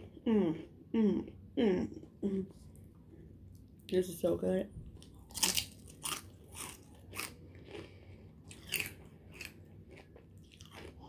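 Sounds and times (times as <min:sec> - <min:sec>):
crisp chip crunching: 0:05.0 - 0:11.0.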